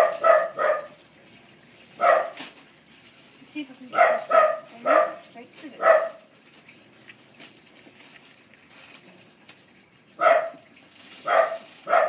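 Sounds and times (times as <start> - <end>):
plastic crinkling: 2.2 - 2.9, 6.4 - 9.8, 10.7 - 12.0.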